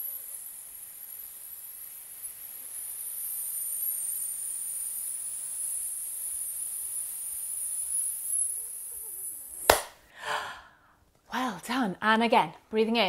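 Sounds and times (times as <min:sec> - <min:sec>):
woman's long hissing exhale: 0:08.7 - 0:11.0.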